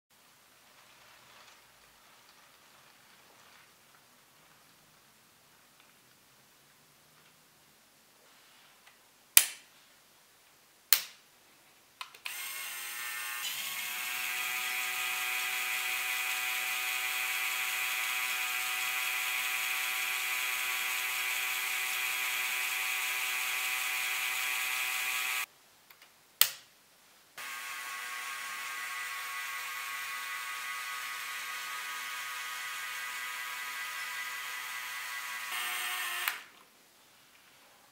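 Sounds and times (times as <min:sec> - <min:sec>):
toy motor and gears whirring: 0:12.3 - 0:25.5, 0:27.4 - 0:36.5.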